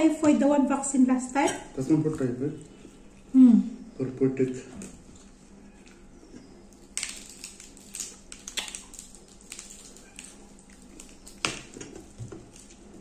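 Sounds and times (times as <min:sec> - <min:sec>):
chewing: 0:05.1 - 0:13.0
lettuce and fried fish tearing: 0:06.8 - 0:13.0.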